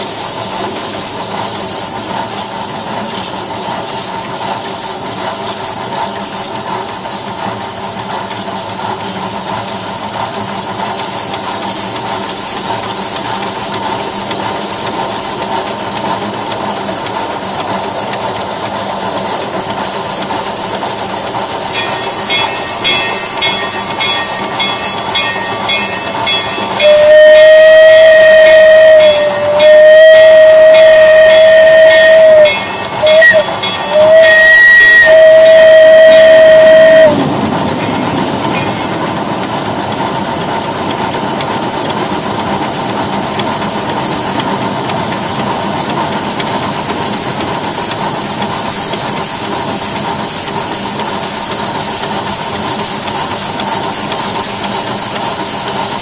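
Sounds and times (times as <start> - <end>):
locomotive rumble and hiss: 0.0 - 56.0
locomotive bell ringing: 21.6 - 40.1
train whistle blasts: 22.9 - 37.2.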